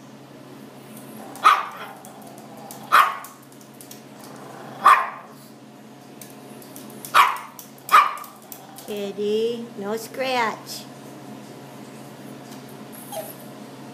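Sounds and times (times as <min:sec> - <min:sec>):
small dog barking: 0:01.4 - 0:02.0, 0:02.9 - 0:03.3, 0:04.8 - 0:05.4, 0:07.1 - 0:08.4.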